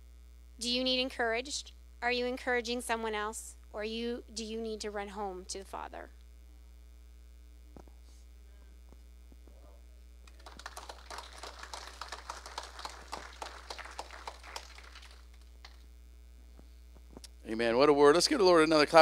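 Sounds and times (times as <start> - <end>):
electrical mains hum: 0.0 - 19.0
audience applause: 10.3 - 15.8.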